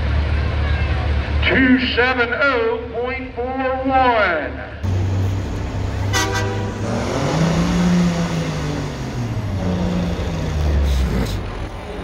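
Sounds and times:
diesel truck engine under load: 4.8s - 12.0s
truck horn blast: 6.0s - 8.1s.

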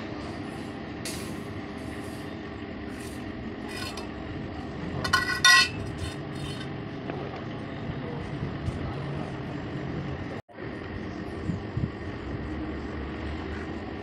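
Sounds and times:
fan cage scraping and rattling: 2.9s - 6.9s.

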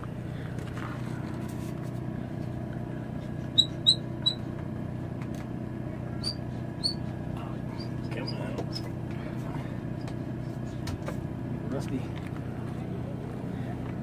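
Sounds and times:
low machine hum: 0.0s - 14.0s
high-pitched squeaks: 3.5s - 4.5s, 6.2s - 7.1s.

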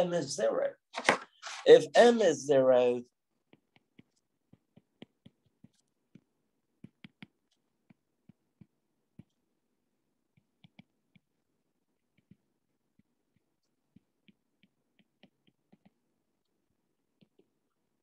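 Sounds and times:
stylus tapping on glass screen: 3.5s - 9.4s.

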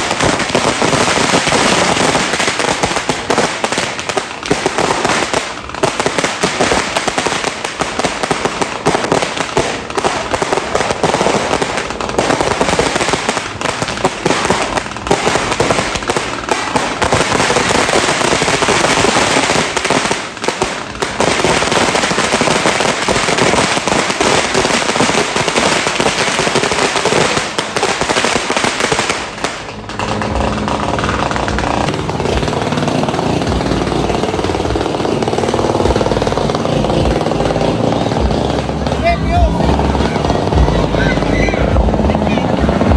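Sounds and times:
firecrackers and fireworks banging: 0.0s - 42.9s.

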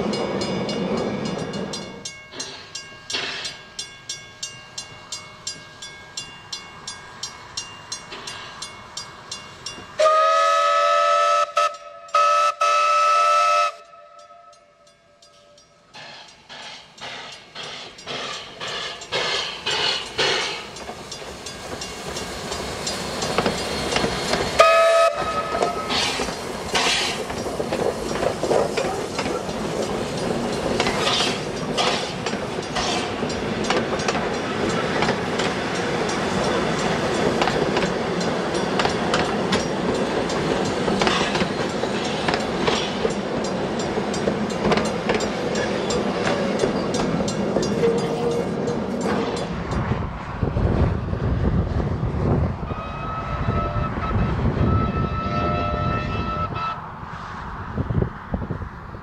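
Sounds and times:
train wheels clacking on rail joints: 0.0s - 4.6s, 15.3s - 50.6s
steam locomotive whistle: 10.0s - 15.6s, 24.5s - 27.2s, 52.6s - 56.8s.

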